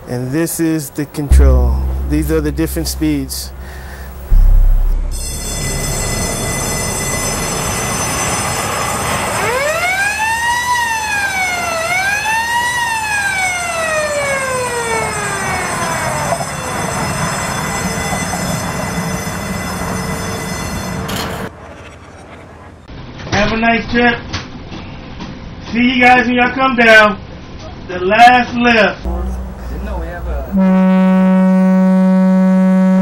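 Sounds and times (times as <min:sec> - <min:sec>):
steady noise: 0:01.3 - 0:07.8
thin high whine: 0:01.3 - 0:09.0.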